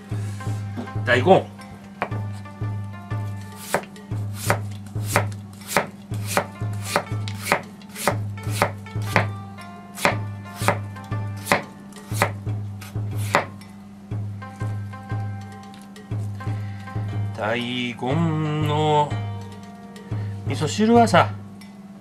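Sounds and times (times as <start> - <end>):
knife chopping on cutting board: 3.6 - 9.3, 10.0 - 13.6.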